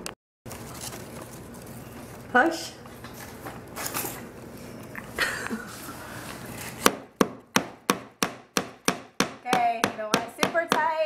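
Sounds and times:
rustling: 0.5s - 4.8s.

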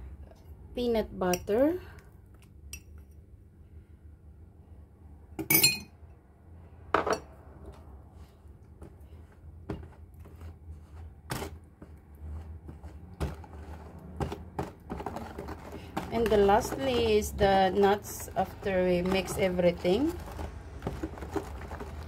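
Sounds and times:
metal spoon clinking on glass bowl: 5.4s - 5.9s.

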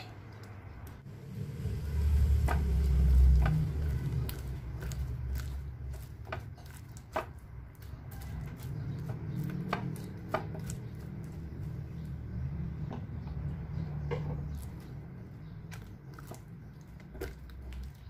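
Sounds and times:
slime squelching: 0.4s - 12.3s, 14.5s - 18.0s
low rumble: 0.9s - 6.1s.

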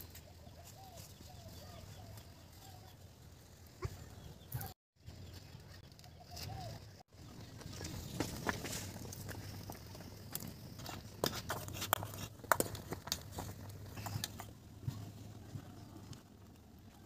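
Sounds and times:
firewood crackling: 0.0s - 17.0s.

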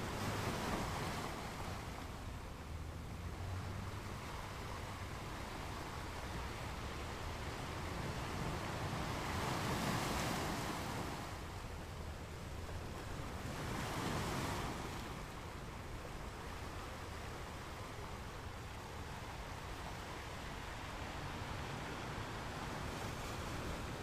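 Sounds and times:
wind gusts: 0.0s - 24.0s.

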